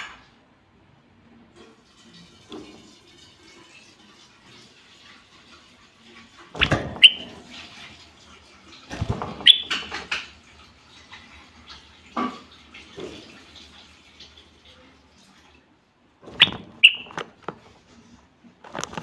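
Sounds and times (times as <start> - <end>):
bird whistled notes: 7.0 - 7.3, 9.4 - 9.8, 16.4 - 17.2
rustling and thumping: 8.9 - 10.1.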